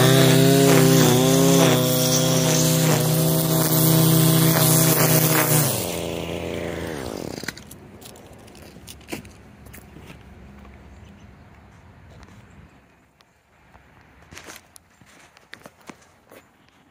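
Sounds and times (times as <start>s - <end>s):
string trimmer engine revving: 0.0s - 9.1s.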